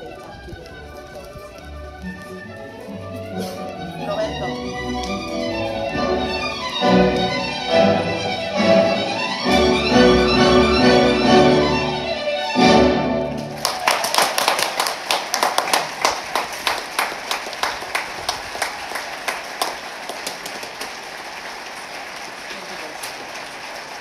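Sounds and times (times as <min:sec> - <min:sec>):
audience applauding: 0:13.2 - 0:24.0.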